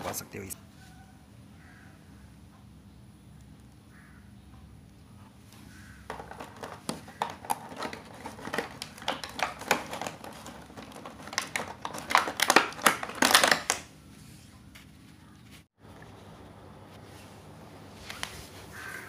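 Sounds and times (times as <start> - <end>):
plastic track pieces clicking: 6.1 - 13.9
plastic tray crinkling: 6.1 - 13.9.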